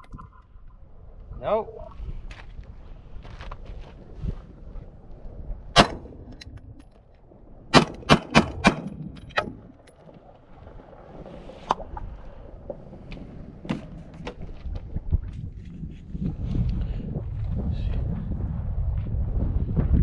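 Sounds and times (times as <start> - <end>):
pistol shots: 7.7 - 9.0.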